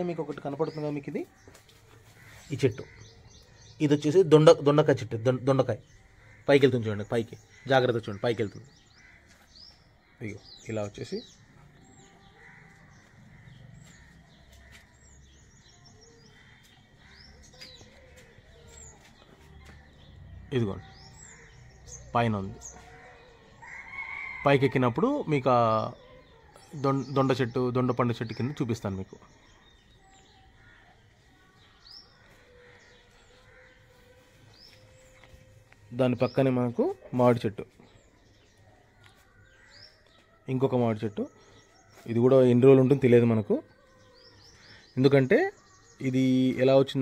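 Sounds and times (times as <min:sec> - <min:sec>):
small birds chirping: 0:00.0 - 0:47.0.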